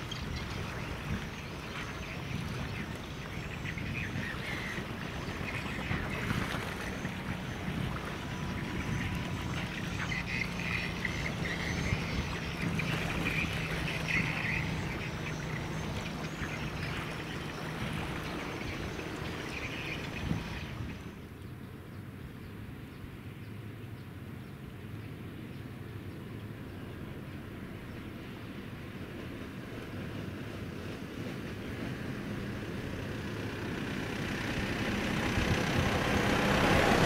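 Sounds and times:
ship engine drone: 0.0 - 21.4, 24.8 - 37.0
bird calls: 0.0 - 23.1.

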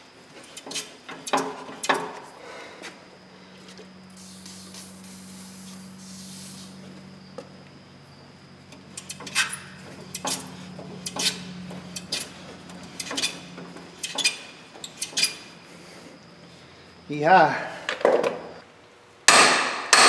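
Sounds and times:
spray bottle hissing: 4.1 - 6.8
hammer striking metal: 19.3 - 20.0.

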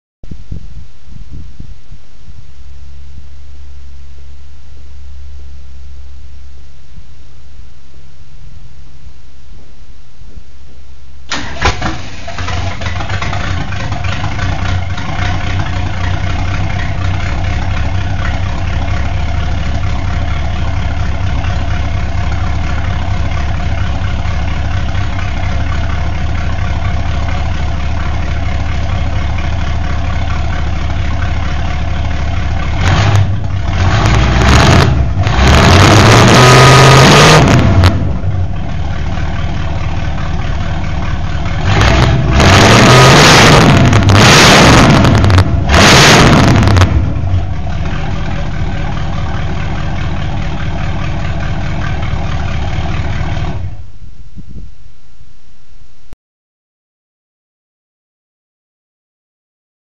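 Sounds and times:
loud vee eight engine revving: 32.1 - 38.6, 41.4 - 53.8.

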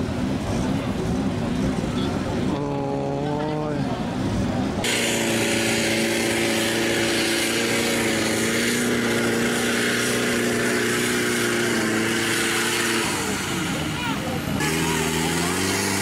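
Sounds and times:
diesel engine at high revs: 0.0 - 16.0
water splashing spray: 4.8 - 16.0.

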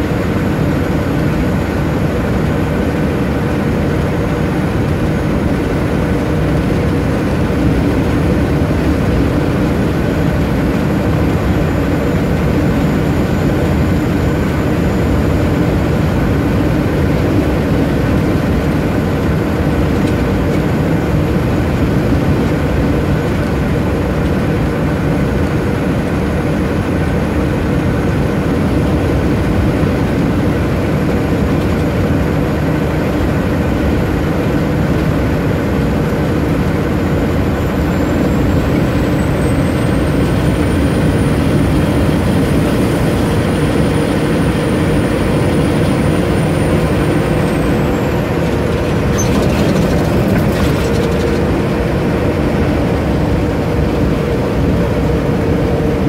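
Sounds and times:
diesel truck engine: 0.0 - 56.0
thin high whine: 37.3 - 51.4.

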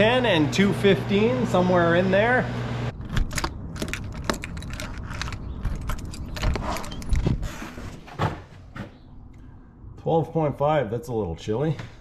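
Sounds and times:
keys jangling: 3.3 - 7.3.

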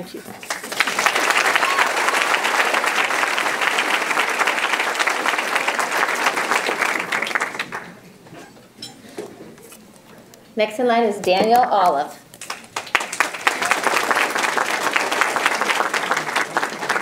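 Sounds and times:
audience applauding: 0.4 - 8.0, 12.4 - 17.0.

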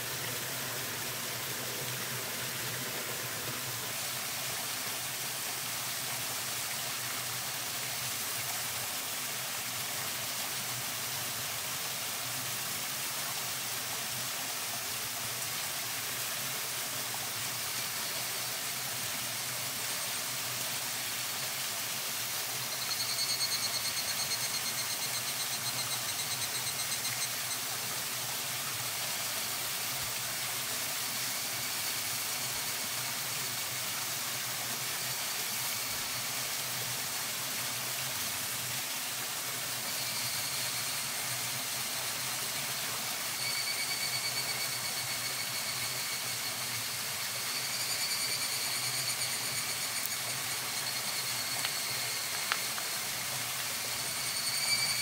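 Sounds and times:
campfire burning: 52.3 - 52.9.

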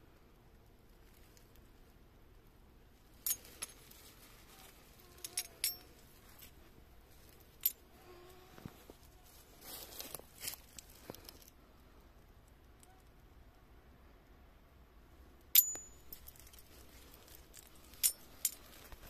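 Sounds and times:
rustle in dry leaves and soil: 3.0 - 11.6, 15.7 - 19.0
coins clinking: 5.2 - 6.0, 15.6 - 16.8, 17.9 - 18.8.

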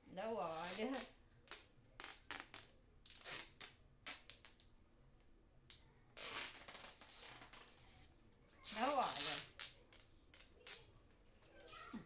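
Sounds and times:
adhesive tape tearing: 0.4 - 4.7, 5.7 - 7.8, 8.6 - 10.9
tape ripping off roll: 0.4 - 4.7, 5.7 - 7.8, 8.6 - 10.9.

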